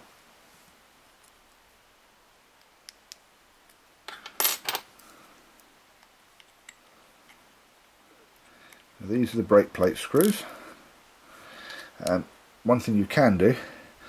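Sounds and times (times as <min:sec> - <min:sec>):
small metal clinks clattering: 0:04.1 - 0:04.9.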